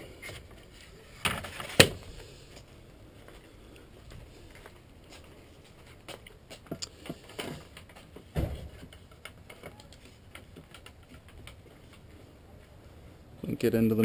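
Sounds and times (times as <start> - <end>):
bed parts knocking and clicking: 6.1 - 12.0.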